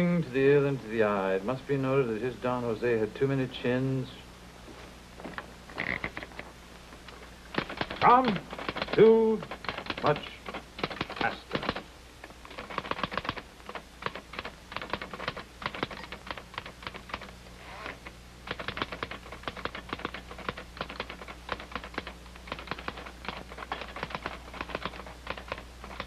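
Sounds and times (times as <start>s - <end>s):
typewriter keys clacking: 7.5s - 11.8s, 12.5s - 17.3s, 18.5s - 26.0s.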